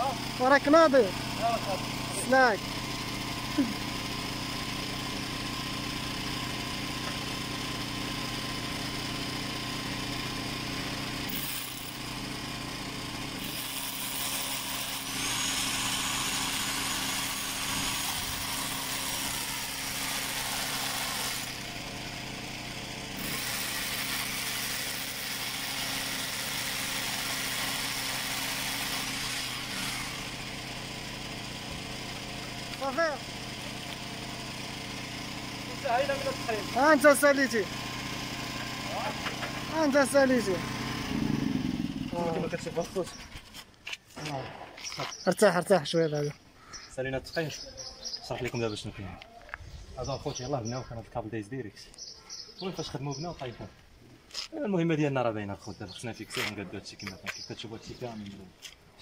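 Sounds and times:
power tool on concrete wall: 0:00.0 - 0:43.2
small motor running: 0:00.0 - 0:43.6.

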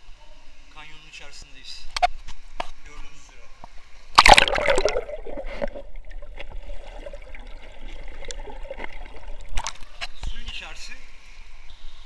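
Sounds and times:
stream water trickling: 0:04.0 - 0:11.0.

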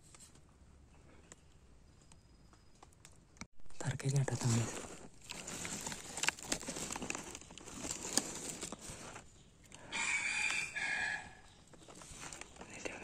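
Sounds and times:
crackling and rustling: 0:03.8 - 0:09.4, 0:11.6 - 0:13.0
rooster crowing: 0:09.8 - 0:11.5.

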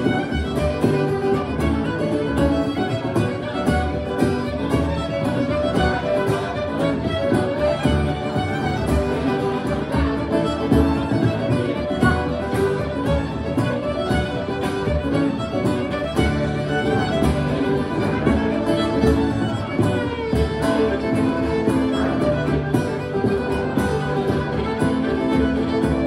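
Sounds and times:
fiddles playing melody: 0:00.0 - 0:26.0
frame drum beat: 0:00.0 - 0:26.0
strummed guitar: 0:00.0 - 0:26.0.

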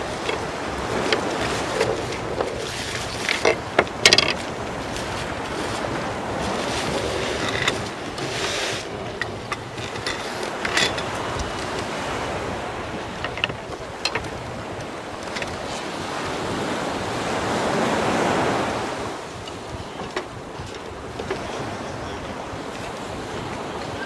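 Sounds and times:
sharp clicks and rustles: 0:00.0 - 0:12.0
sea wash: 0:00.0 - 0:24.0
wind buffeting microphone: 0:00.0 - 0:24.0.

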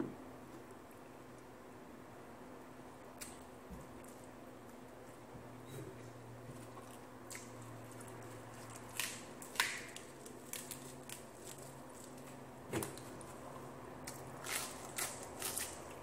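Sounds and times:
lettuce leaf crackling: 0:07.3 - 0:13.4, 0:14.0 - 0:16.0.

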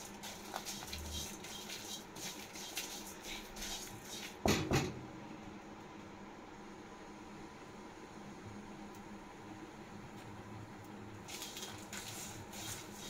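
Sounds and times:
spatula scraping spices in pan: 0:00.0 - 0:04.4, 0:11.3 - 0:13.0
spatula knock on pan: 0:04.5 - 0:05.0.

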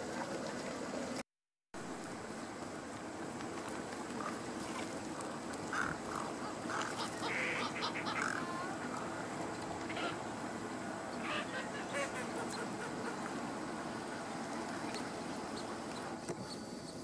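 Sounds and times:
steady background noise: 0:01.8 - 0:17.0
wetland birds calling: 0:04.1 - 0:17.0.

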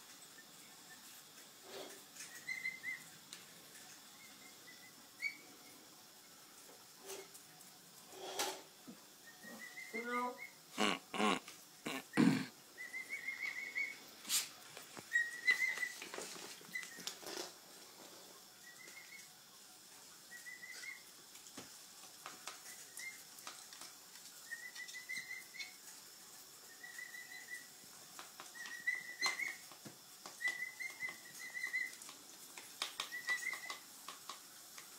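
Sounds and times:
emu chick whistling calls: 0:02.3 - 0:03.1, 0:09.2 - 0:10.6, 0:12.8 - 0:14.0, 0:15.1 - 0:16.0, 0:24.4 - 0:25.7, 0:26.7 - 0:27.7, 0:28.5 - 0:29.6, 0:30.4 - 0:32.0, 0:33.0 - 0:33.8.

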